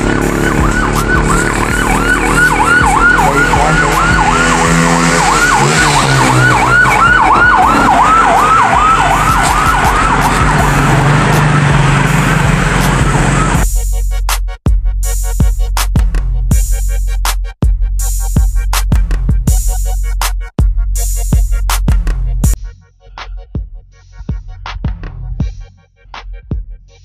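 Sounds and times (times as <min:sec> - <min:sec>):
siren-like synth tone: 0:00.0 - 0:13.6
held bass notes: 0:00.0 - 0:25.7
electronic music: 0:00.0 - 0:27.0.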